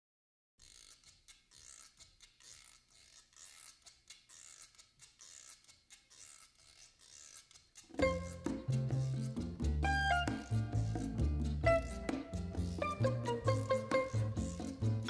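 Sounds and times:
pencil scratching on paper: 0.6 - 8.0.

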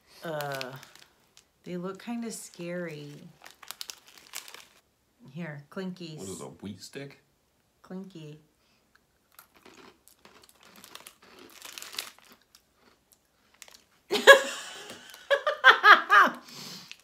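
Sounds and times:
plastic wrapper crinkling: 0.1 - 1.5, 2.4 - 4.8, 9.4 - 12.6, 13.4 - 14.0.

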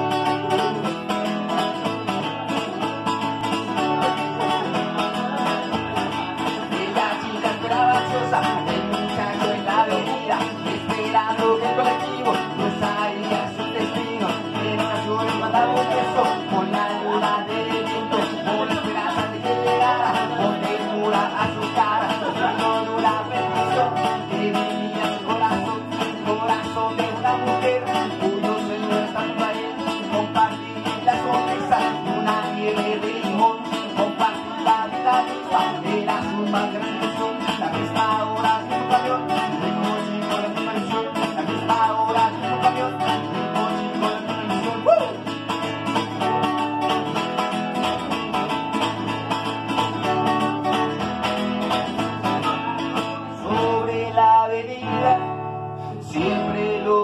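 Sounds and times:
acoustic guitar chords: 0.0 - 57.0.

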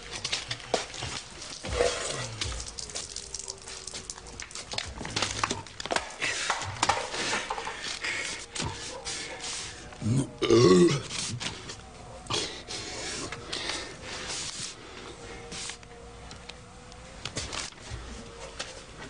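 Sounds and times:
man gulping: 1.6 - 3.3, 10.0 - 11.1.

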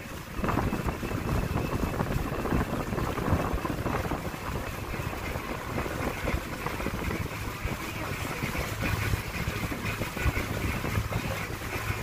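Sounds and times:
boat engine low rumble: 0.0 - 12.0
wind buffeting microphone: 0.0 - 12.0.

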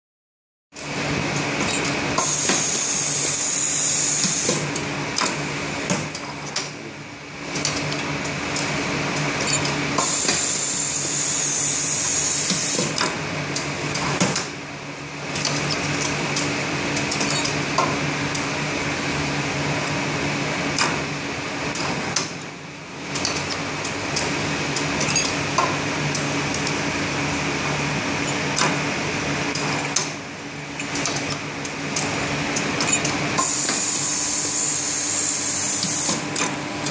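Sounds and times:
metallic clicks and clacks: 7.5 - 10.5, 15.3 - 18.4, 23.1 - 26.8, 30.8 - 33.5.

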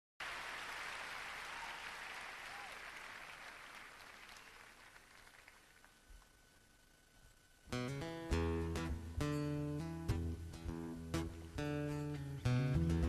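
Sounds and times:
audience applause: 0.2 - 6.0.

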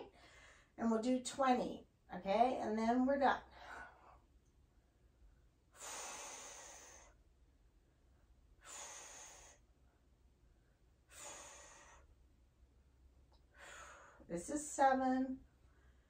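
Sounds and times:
woman breathing out hard: 5.8 - 7.2, 8.6 - 9.6, 11.1 - 12.1, 13.6 - 14.2.

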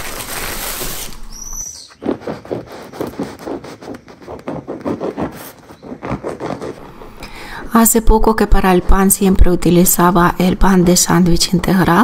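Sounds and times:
knife sawing through hard bread: 2.0 - 7.2.

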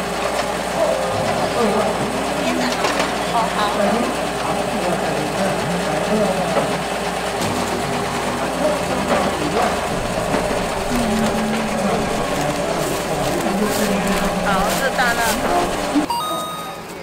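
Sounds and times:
electric motor and gear drive running: 0.0 - 16.1
background voices: 7.7 - 17.0.

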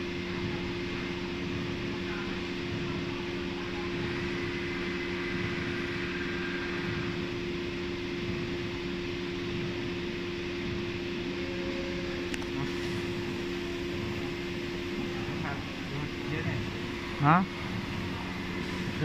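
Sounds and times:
machinery idling hum: 0.0 - 19.0.

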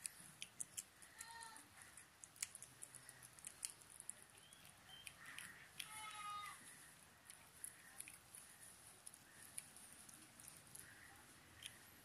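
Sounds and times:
kitten chewing: 0.0 - 12.0
kitten calling: 4.3 - 6.8.

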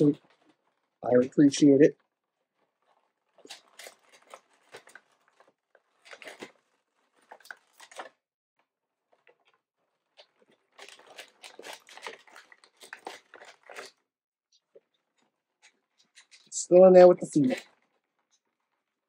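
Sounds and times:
plastic packaging crinkling: 0.0 - 1.0, 1.9 - 8.2, 9.1 - 14.0, 17.4 - 19.0.

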